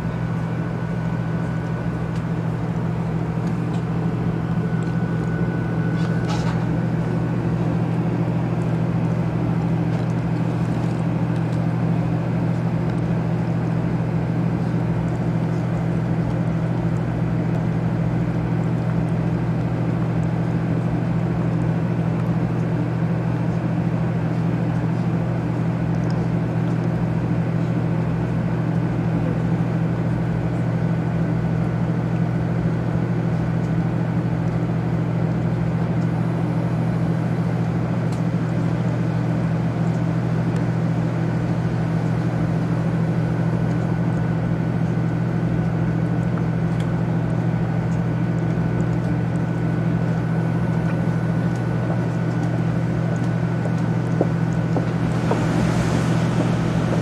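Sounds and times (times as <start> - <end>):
train interior hum and rumble: 0.0 - 16.1, 51.8 - 57.0.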